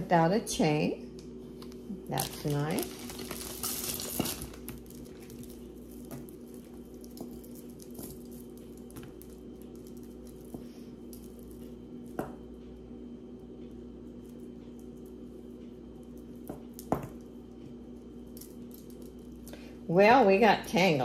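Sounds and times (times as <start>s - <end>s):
steady low hum: 0.0s - 21.0s
jewelry rustling: 2.1s - 12.2s.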